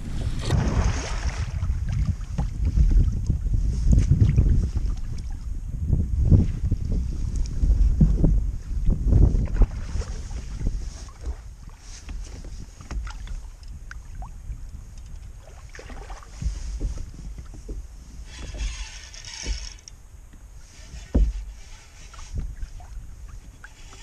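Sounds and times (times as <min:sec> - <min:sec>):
water slapping kayak hull: 0:00.0 - 0:24.0
wind rumbling on microphone: 0:00.0 - 0:24.0.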